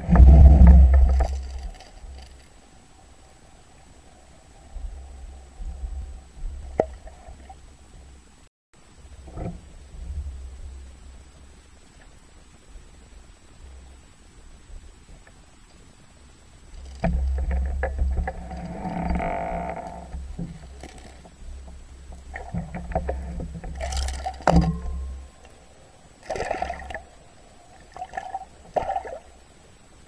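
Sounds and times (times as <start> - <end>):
water sloshing and bubbling: 0.0 - 8.4, 16.6 - 30.0
underwater rumble of moving water: 0.0 - 30.0.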